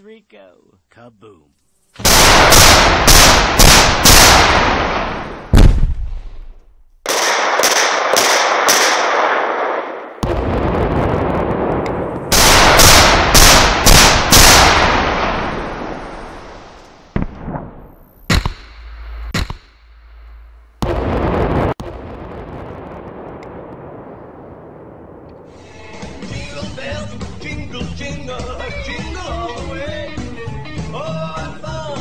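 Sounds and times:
echoing rumble: 0:02.0 - 0:06.7, 0:08.5 - 0:28.6
explosive blasts: 0:02.0 - 0:25.6.

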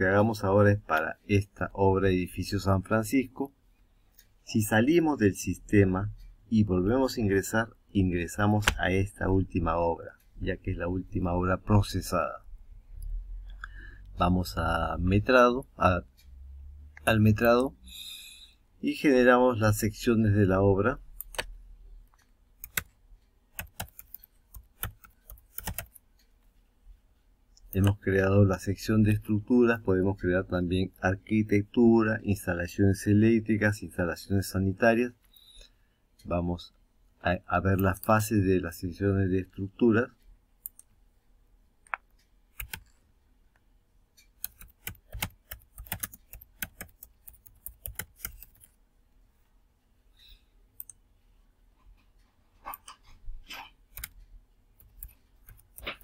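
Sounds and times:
typing on computer keyboard: 0:22.6 - 0:22.9, 0:23.5 - 0:26.0, 0:42.6 - 0:42.9, 0:44.4 - 0:48.8, 0:53.9 - 0:54.2, 0:54.8 - 0:56.0.

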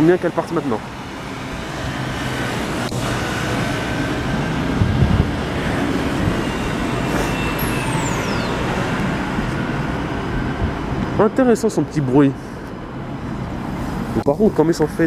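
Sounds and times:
tram running hum: 0:00.0 - 0:11.3
city traffic: 0:00.0 - 0:15.0
high electric whine: 0:02.7 - 0:10.8.

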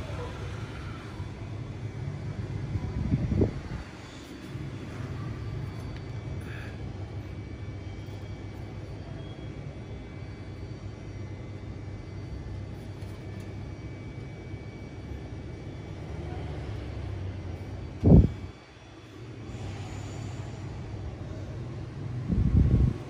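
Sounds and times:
low urban background rumble: 0:00.0 - 0:23.0.

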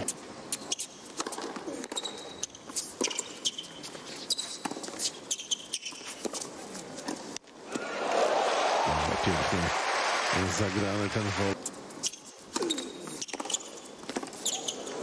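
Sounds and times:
sneaker squeaks on court: 0:00.5 - 0:06.4, 0:12.0 - 0:15.0.

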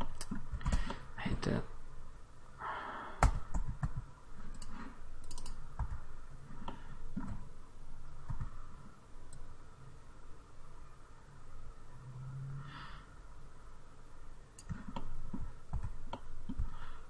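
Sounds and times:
mouse and keyboard clicks: 0:03.2 - 0:06.0, 0:14.6 - 0:16.7.

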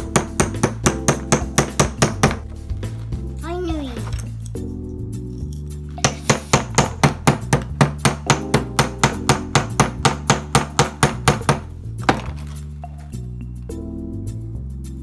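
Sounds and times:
wooden mallet tapping tool: 0:00.1 - 0:02.4, 0:06.0 - 0:11.6.

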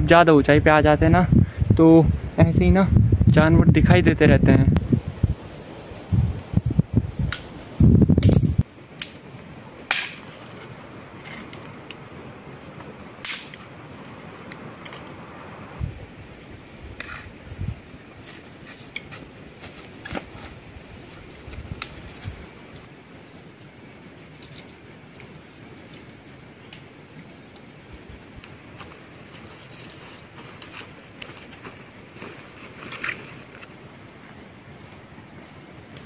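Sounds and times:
branches and twigs snapping: 0:08.2 - 0:09.2, 0:09.8 - 0:12.0, 0:12.6 - 0:15.2, 0:19.0 - 0:22.9, 0:28.4 - 0:33.7.

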